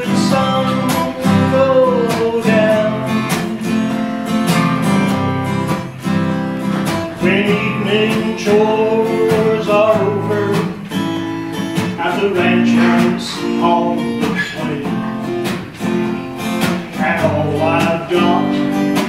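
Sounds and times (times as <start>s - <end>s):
acoustic guitar strumming: 0.0s - 19.0s
man singing held notes: 11.8s - 15.1s.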